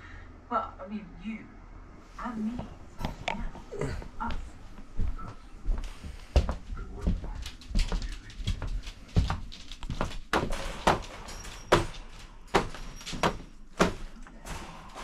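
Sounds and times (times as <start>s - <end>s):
wire dog crate rattling: 8.4s - 15.0s.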